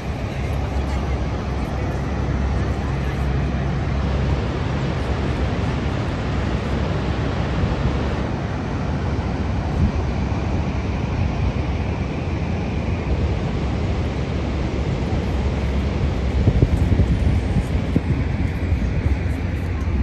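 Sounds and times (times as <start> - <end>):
waterfall roaring: 0.0 - 20.0
wind on microphone: 0.0 - 20.0.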